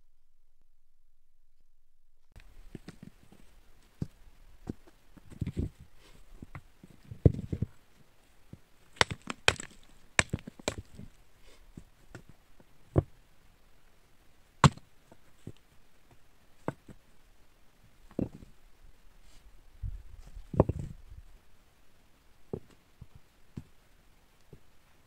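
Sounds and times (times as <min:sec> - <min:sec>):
stone slabs knocking: 0:09.0 - 0:11.1
stone scraping: 0:09.0 - 0:11.2.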